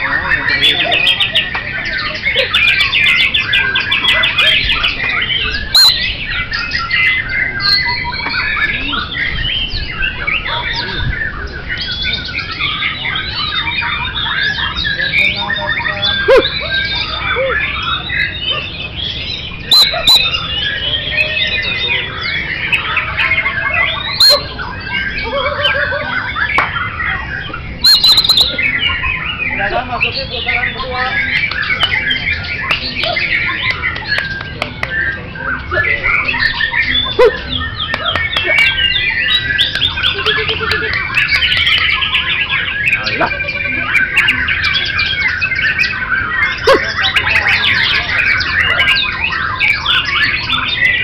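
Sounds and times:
loud sharp bird notes: 0.0 - 51.0
low repeated bird notes: 0.0 - 51.0
songbirds singing: 0.0 - 51.0.

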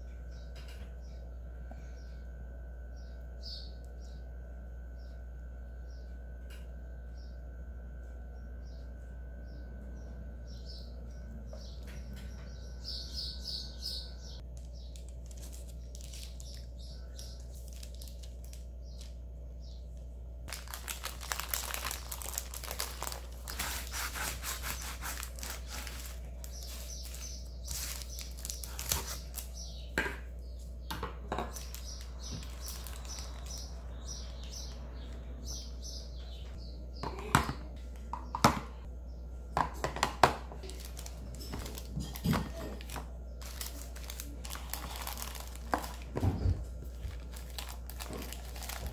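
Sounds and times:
paper wrapping crinkling: 14.4 - 19.2, 20.5 - 29.6, 31.5 - 34.5, 40.6 - 48.9
plastic cups tapping: 45.6 - 46.2.

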